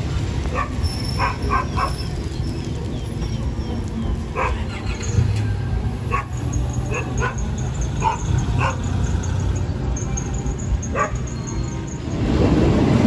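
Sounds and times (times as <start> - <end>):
train rumbling: 0.0 - 13.0
dog barking: 0.5 - 2.0, 4.4 - 4.6, 6.1 - 8.9, 10.9 - 11.3.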